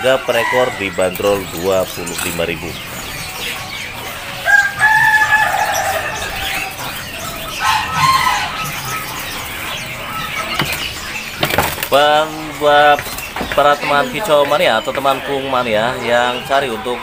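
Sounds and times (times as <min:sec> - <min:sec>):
caged birds chirping: 0:00.0 - 0:17.0
rooster crowing: 0:04.1 - 0:09.6.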